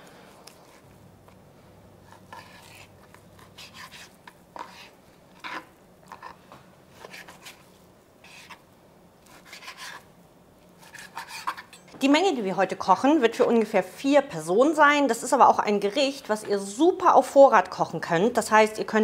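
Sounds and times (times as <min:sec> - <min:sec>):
knife cutting meat on board: 0:09.2 - 0:10.0, 0:10.8 - 0:11.7.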